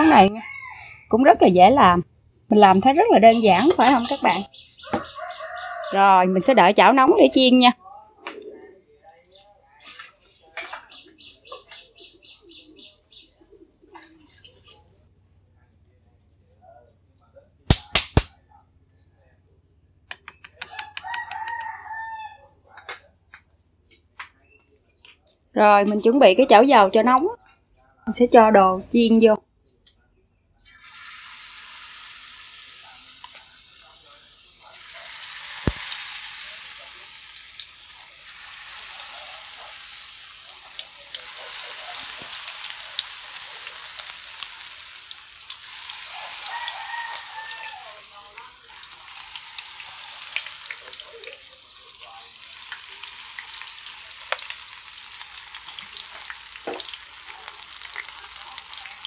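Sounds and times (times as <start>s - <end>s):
fritters deep-frying in hot oil: 2.5s - 7.5s, 30.6s - 59.0s
sharp clicks: 20.1s - 21.3s.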